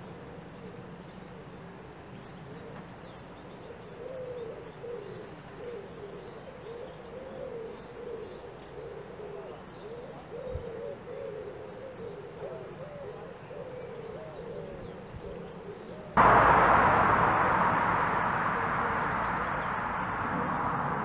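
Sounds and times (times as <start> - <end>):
dove cooing: 4.0 - 16.1.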